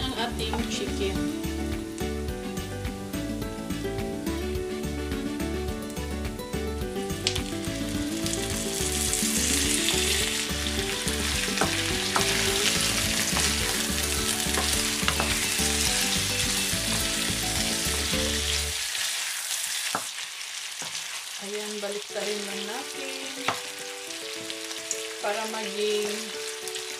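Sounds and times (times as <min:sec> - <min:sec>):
chicken sizzling in oil: 0:07.0 - 0:26.9
spatula knocking against pan: 0:14.5 - 0:15.5.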